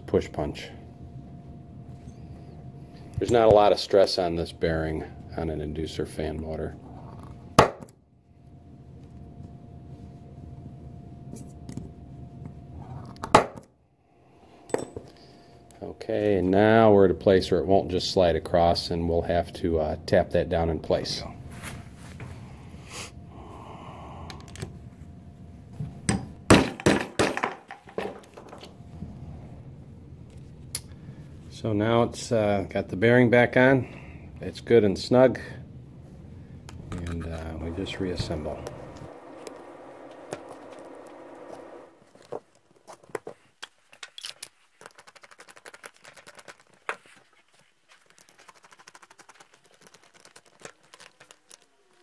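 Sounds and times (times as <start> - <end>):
steady background noise: 19.0 - 43.3.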